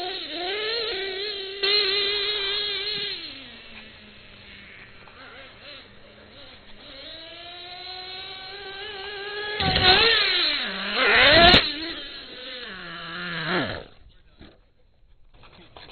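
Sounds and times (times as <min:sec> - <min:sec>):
rc truck engine revving: 0:00.0 - 0:14.6
truck landing thud: 0:09.6 - 0:10.2.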